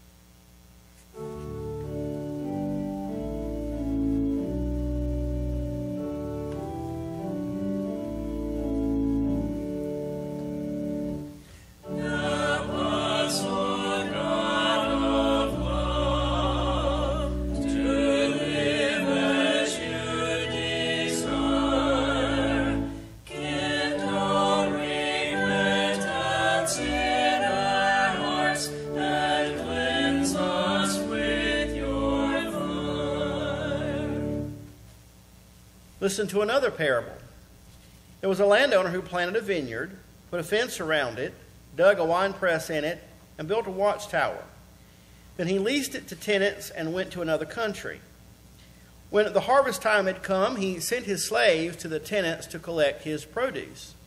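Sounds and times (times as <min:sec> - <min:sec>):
church organ: 0:01.0 - 0:35.0
choir singing a hymn: 0:01.6 - 0:34.7.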